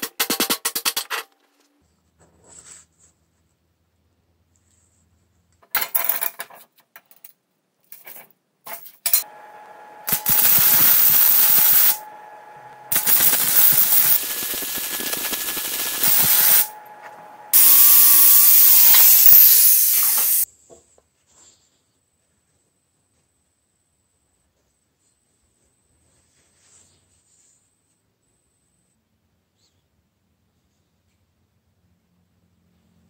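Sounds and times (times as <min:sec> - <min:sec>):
faint machine hum: 0:09.1 - 0:19.3
welding arc hiss and crackle: 0:10.0 - 0:20.5.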